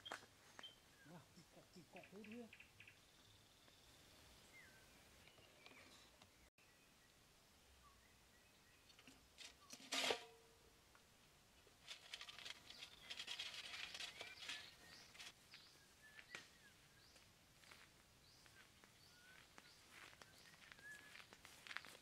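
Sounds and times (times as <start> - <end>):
faint bird chirps: 0.0 - 7.2, 12.2 - 17.2, 18.2 - 22.0
metal trap clanging shut: 9.4 - 10.4
crackling rustle: 11.6 - 16.5, 19.6 - 22.0.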